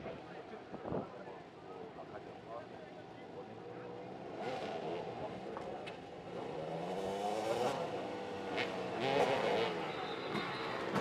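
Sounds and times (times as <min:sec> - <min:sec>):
motorcycle engines revving: 0:04.0 - 0:11.0.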